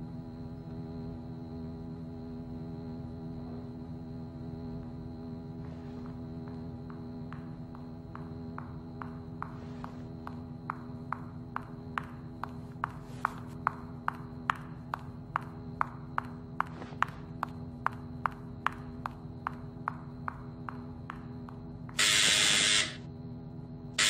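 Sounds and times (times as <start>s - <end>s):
steady hum with high whine: 0.0s - 24.0s
hard footsteps on smooth floor: 5.6s - 23.0s.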